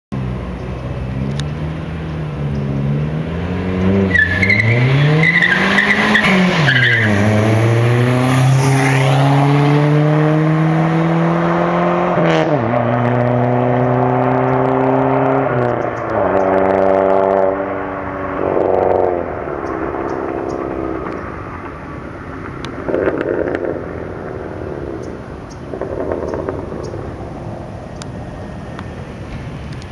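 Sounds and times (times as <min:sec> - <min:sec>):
car engine accelerating: 0:00.2 - 0:29.9
tyre squeal: 0:04.1 - 0:07.4.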